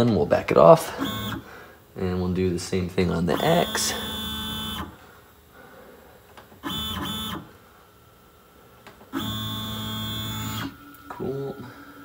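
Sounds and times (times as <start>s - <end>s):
stepper motors whining: 1.0s - 1.5s, 3.2s - 5.0s, 6.6s - 7.6s, 9.1s - 12.0s.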